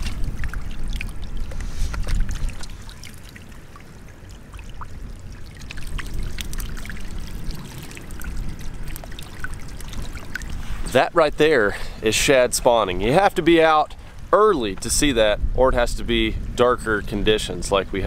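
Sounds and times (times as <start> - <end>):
fish splashing in shallows: 0.0 - 11.0
water lapping against rocks: 0.0 - 14.8.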